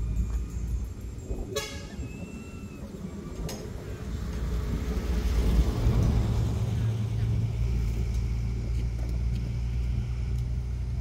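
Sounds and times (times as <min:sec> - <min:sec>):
vehicle engine rumble: 0:00.0 - 0:11.0
short high horn toot: 0:01.5 - 0:02.1.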